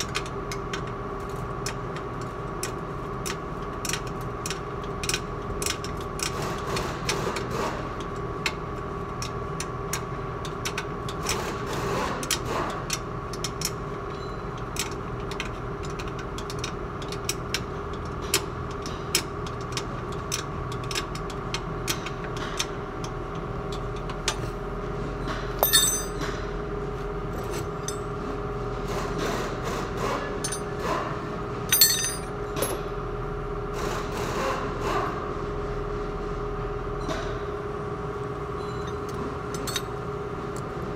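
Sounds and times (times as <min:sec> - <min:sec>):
hand tools clinking on metal: 0:25.6 - 0:26.3, 0:30.4 - 0:30.8, 0:31.7 - 0:32.8, 0:39.5 - 0:39.9
loud metal clanks: 0:25.6 - 0:26.3, 0:31.7 - 0:32.8
steady hum: 0:25.6 - 0:26.3, 0:31.7 - 0:32.8.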